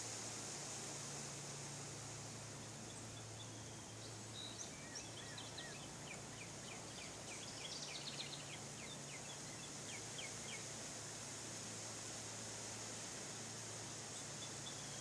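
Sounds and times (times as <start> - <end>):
steady hiss: 0.0 - 15.0
birds chirping: 2.6 - 10.7.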